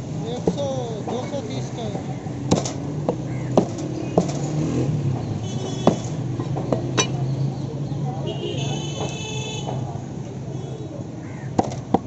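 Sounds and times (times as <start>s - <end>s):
low traffic hum: 0.0s - 12.0s
cleaver chopping on wooden block: 2.5s - 4.6s, 11.6s - 12.0s.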